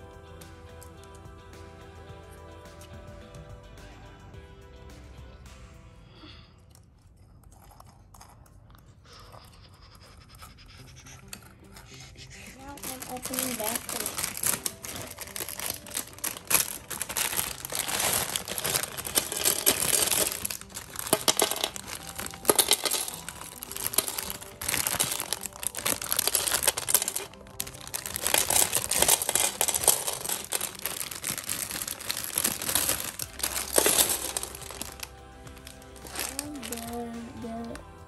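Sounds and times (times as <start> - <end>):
plastic bricks clattering: 12.6 - 37.0
plastic bags crinkling: 12.6 - 37.9.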